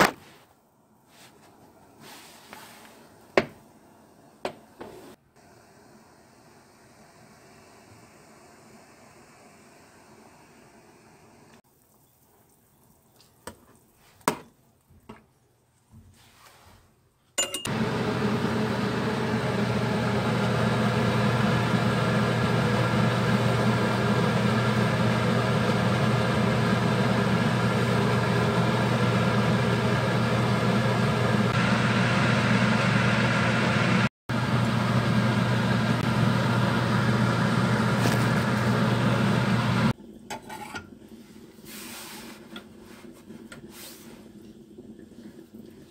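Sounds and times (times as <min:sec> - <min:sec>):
kitchen appliance humming: 0:17.4 - 0:41.6.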